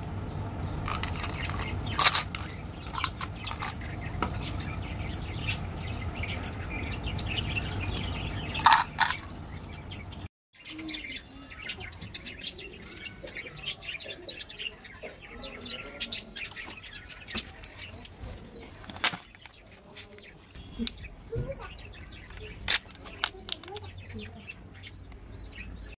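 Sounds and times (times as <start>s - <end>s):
birds chirping: 0.0s - 26.0s
plastic and wrapper clicks and rustles: 0.8s - 4.0s, 8.0s - 9.4s, 18.6s - 20.2s, 22.2s - 23.9s.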